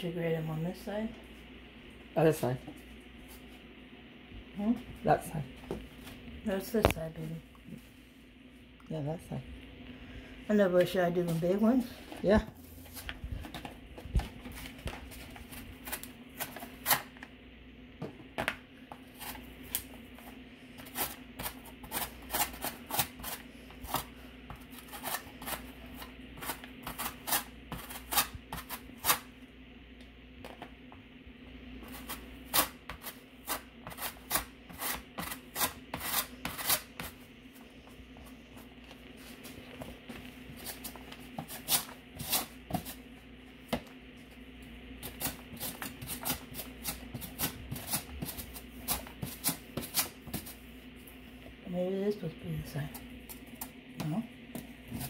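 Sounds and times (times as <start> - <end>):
potato rasping on metal grater: 31.9 - 37.2.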